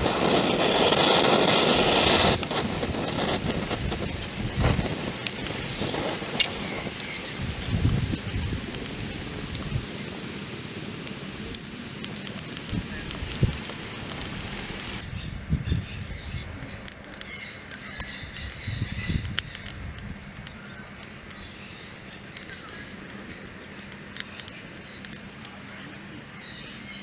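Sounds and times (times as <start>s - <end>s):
steady hiss: 0.0s - 27.0s
birds chirping and calling: 6.4s - 7.4s, 15.0s - 19.7s, 20.5s - 27.0s.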